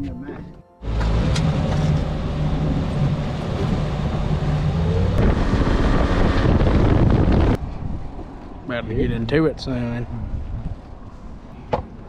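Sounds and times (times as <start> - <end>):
boat engine drone: 0.8 - 7.6
wind buffeting microphone: 2.8 - 9.4, 10.0 - 11.0.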